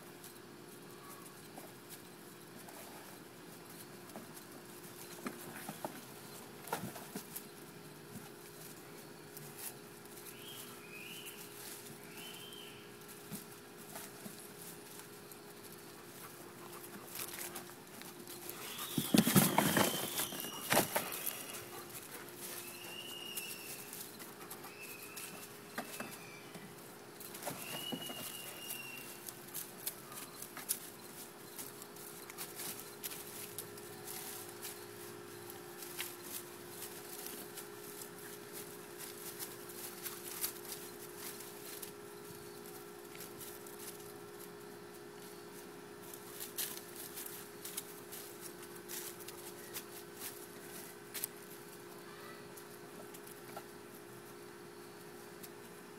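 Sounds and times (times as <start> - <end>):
puppies scuffling: 0.0 - 55.9
puppies squeaking: 18.3 - 26.7.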